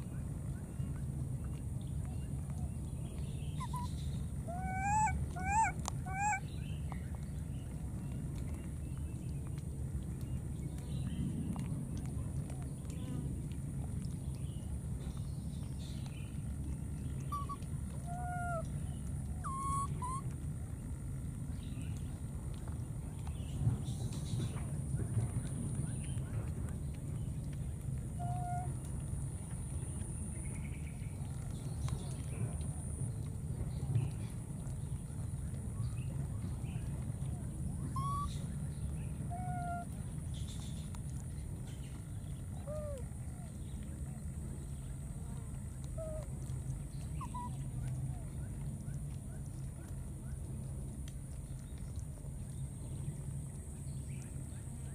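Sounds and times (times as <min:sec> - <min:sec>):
low rumble: 0:00.0 - 0:54.9
baby macaque coo calls: 0:03.6 - 0:06.5, 0:17.3 - 0:18.7, 0:19.4 - 0:20.2, 0:28.2 - 0:28.8, 0:37.9 - 0:38.4, 0:39.3 - 0:39.9, 0:42.6 - 0:43.1, 0:47.2 - 0:47.6.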